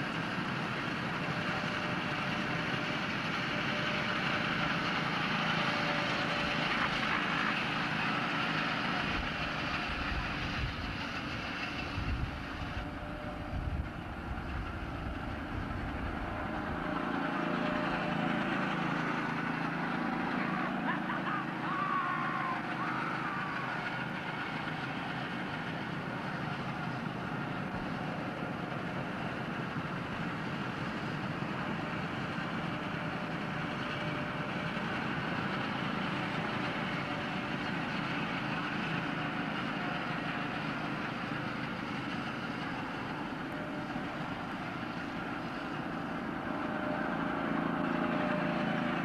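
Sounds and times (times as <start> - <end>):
go-kart engines running: 0.0 - 49.0.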